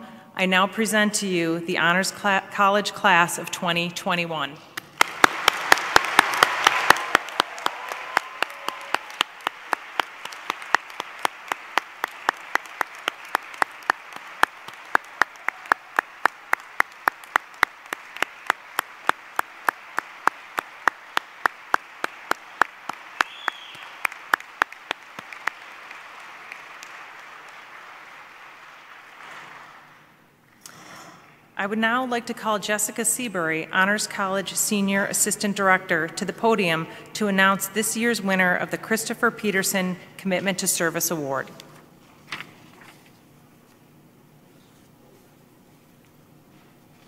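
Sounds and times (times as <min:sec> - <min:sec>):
person clapping sharply: 0:04.8 - 0:29.9
audience applauding: 0:04.8 - 0:30.1.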